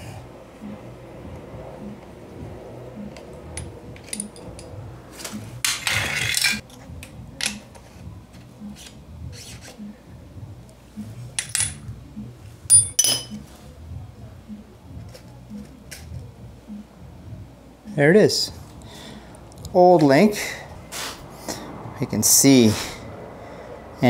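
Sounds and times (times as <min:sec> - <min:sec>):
metal scrape: 0:03.6 - 0:06.6.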